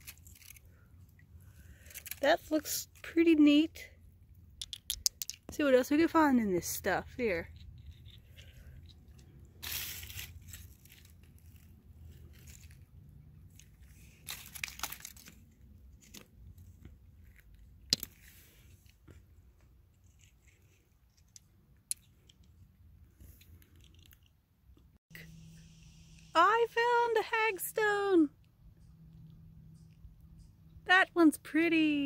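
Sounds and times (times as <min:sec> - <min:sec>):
dry leaves and stones rustling: 0:00.0 - 0:00.8, 0:07.1 - 0:18.8
stone clicking on stone: 0:04.6 - 0:05.5.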